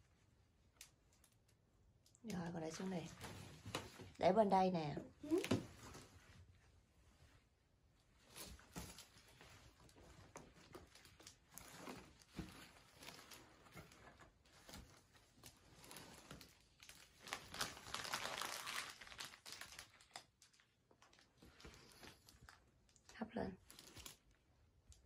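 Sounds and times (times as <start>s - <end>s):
gift packaging crinkling: 8.3s - 13.9s, 14.5s - 23.0s, 23.6s - 24.4s.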